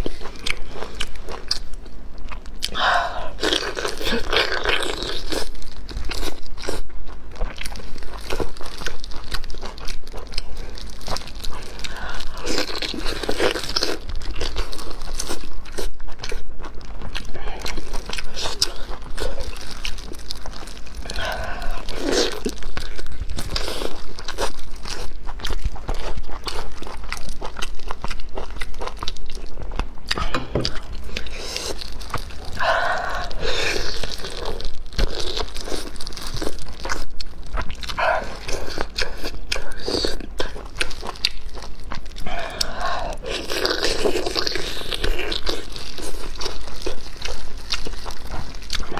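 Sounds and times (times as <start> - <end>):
person chewing: 0.0 - 48.9.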